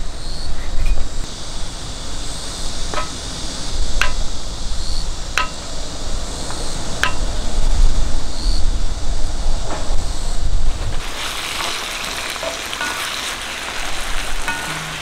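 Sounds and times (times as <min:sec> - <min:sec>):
wind rumbling on microphone: 0:00.0 - 0:11.4
sharp ringing taps: 0:02.9 - 0:03.2, 0:04.0 - 0:04.3, 0:05.4 - 0:05.7, 0:07.0 - 0:07.3.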